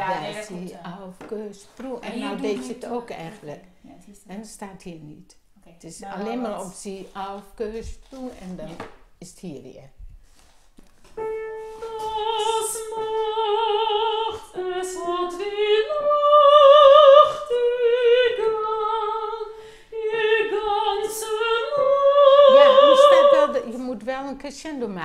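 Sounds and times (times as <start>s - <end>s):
woman singing classical with vibrato: 11.2s - 24.4s.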